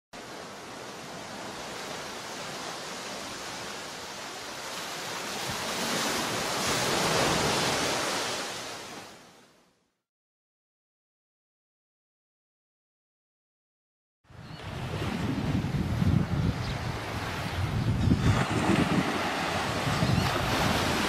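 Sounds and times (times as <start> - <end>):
rushing surf: 0.2 - 9.4, 14.6 - 21.0.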